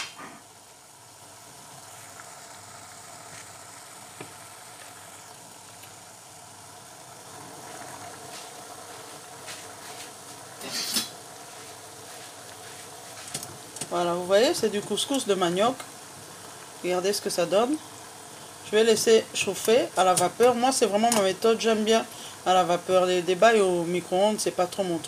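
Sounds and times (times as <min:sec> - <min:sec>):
steamer hissing on stove: 0:00.0 - 0:25.0
metal spoon scraping steamer: 0:10.6 - 0:11.2.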